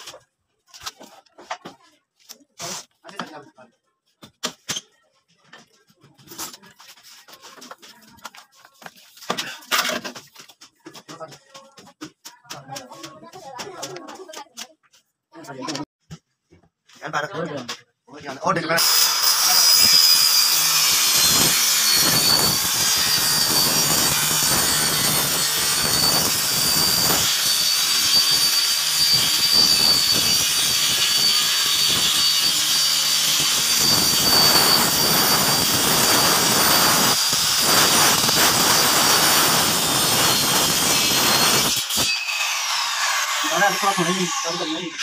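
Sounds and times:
circular saw cutting plastic: 0:18.8 - 0:45.0.

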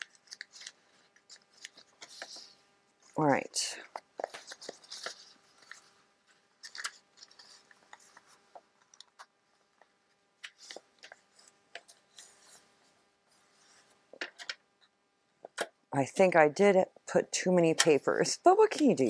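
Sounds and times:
paper rustling: 0:00.0 - 0:02.6, 0:03.9 - 0:14.5.

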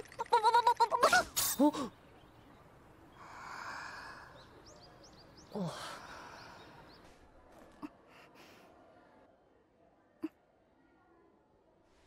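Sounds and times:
birds chirping: 0:01.6 - 0:07.4.

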